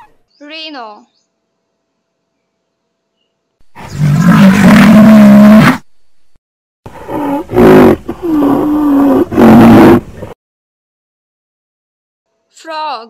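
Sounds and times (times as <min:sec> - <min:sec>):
rhinoceros calling: 0:06.9 - 0:10.3.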